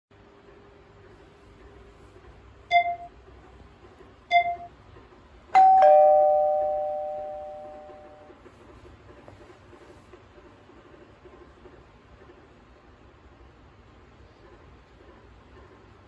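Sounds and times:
short chime dings: 5.6 - 8.3
two-note ding-dong chime: 5.6 - 8.3.

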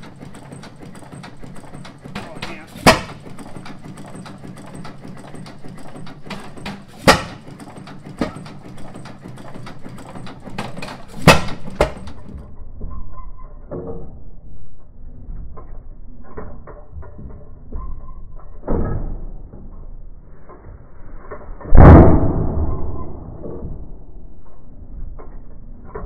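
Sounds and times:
engine valve gear clatter: 0.0 - 12.5.

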